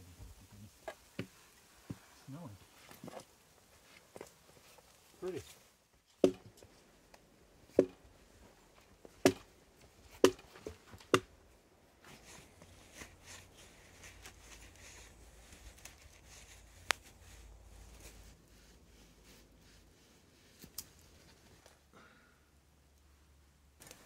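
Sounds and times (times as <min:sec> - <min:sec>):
hatchet chopping firewood: 0:06.2 - 0:06.6, 0:07.8 - 0:08.0, 0:09.2 - 0:09.5, 0:10.1 - 0:11.3.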